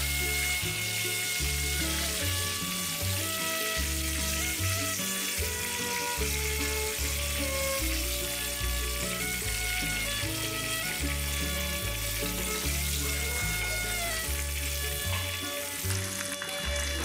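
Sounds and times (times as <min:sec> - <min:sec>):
background music: 0:00.0 - 0:17.0
chicken sizzling in oil: 0:00.0 - 0:17.0.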